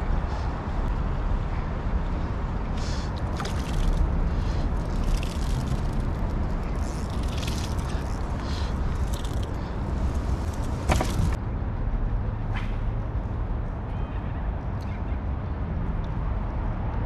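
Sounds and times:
low rumble of traffic: 0.0s - 17.0s
fish splashing in water: 3.2s - 9.4s.

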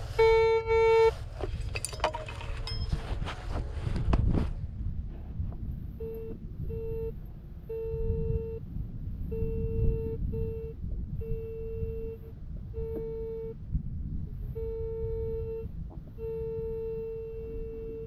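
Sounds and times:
low rumbling noise: 0.0s - 18.0s
metal detector beeping: 0.1s - 1.2s, 1.9s - 3.0s, 6.0s - 8.6s, 9.3s - 13.6s, 14.6s - 18.0s.

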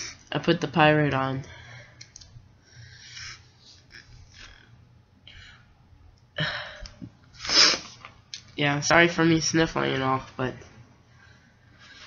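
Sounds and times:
soft breaths: 1.4s - 4.6s, 11.0s - 12.0s.

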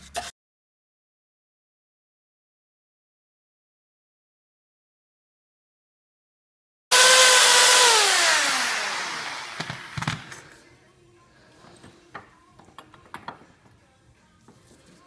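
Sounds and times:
power tool motor spinning down: 6.9s - 10.4s.

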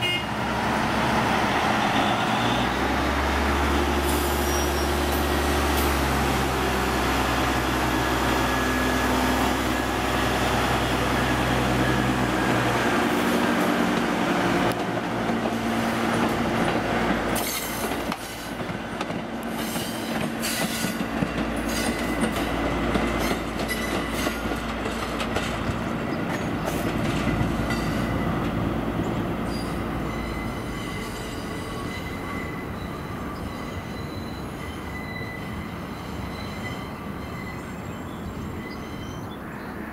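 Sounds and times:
wheel squeal: 4.2s - 5.0s
wheels clicking over rail joints: 13.9s - 29.2s.

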